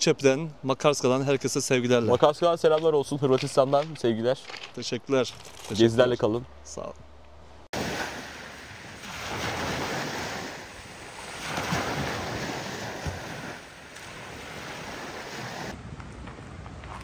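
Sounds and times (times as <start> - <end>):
sea waves washing ashore: 7.8 - 16.0.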